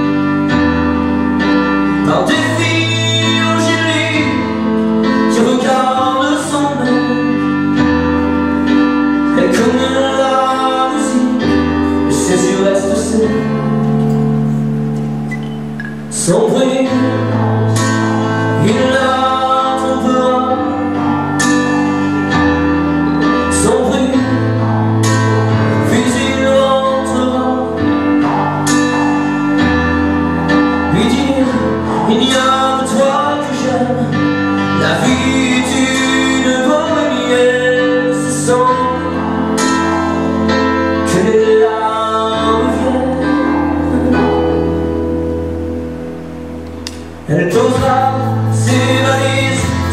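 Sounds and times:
man singing into a microphone: 1.4 - 14.0, 16.0 - 45.1, 47.2 - 49.9
music with bass and beat: 20.6 - 36.4, 46.6 - 49.9.

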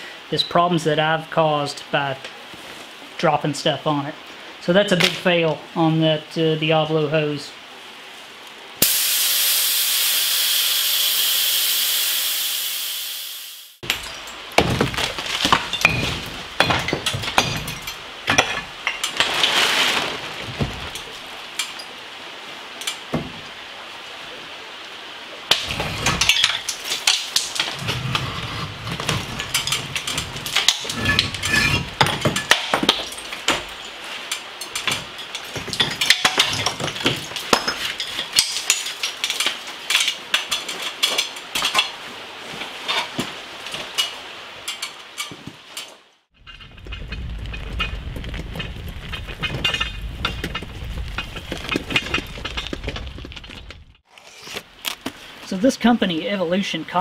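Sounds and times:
concrete blocks knocking and scraping: 13.8 - 21.9, 25.5 - 42.0, 46.4 - 55.3
hand truck rolling over gravel: 13.8 - 21.9, 25.5 - 45.4, 46.4 - 57.0.

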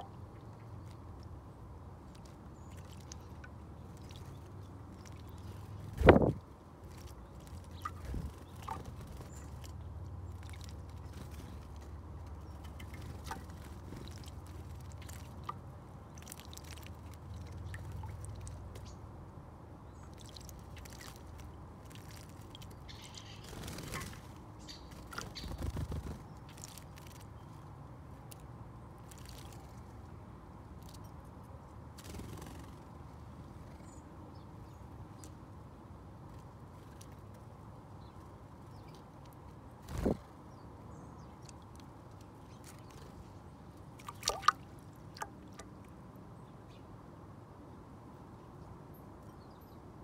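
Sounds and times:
birds splashing in water: 2.1 - 18.9, 20.0 - 27.4, 43.8 - 46.0.

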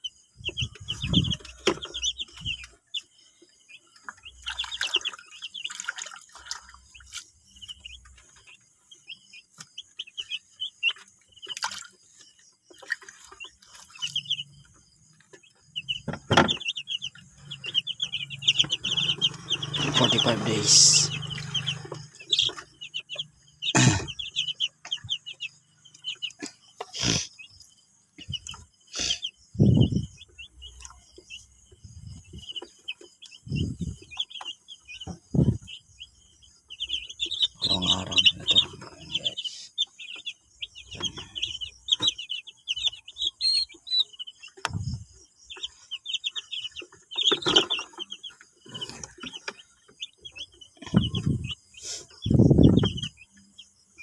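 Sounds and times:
chicks peeping: 0.0 - 54.0
knocks and low thumps: 44.7 - 45.1.

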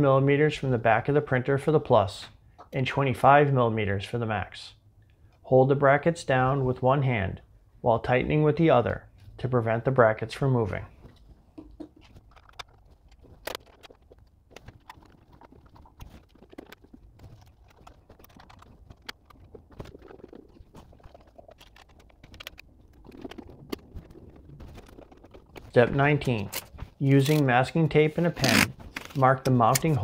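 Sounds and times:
parts being handled: 28.2 - 30.0.

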